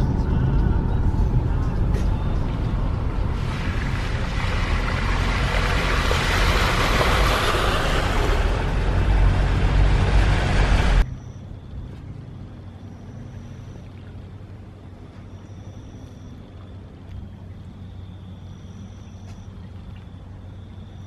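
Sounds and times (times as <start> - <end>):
engine and road rumble: 0.0 - 21.0
rushing hiss of water: 3.3 - 11.0.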